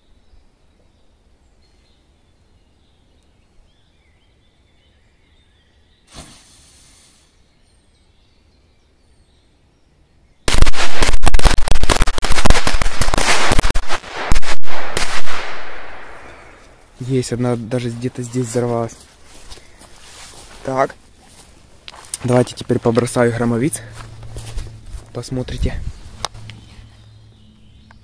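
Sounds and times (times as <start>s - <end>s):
faint bird chirps: 0.0s - 10.5s
brief hiss: 6.1s - 7.4s
firecrackers banging: 10.5s - 16.6s.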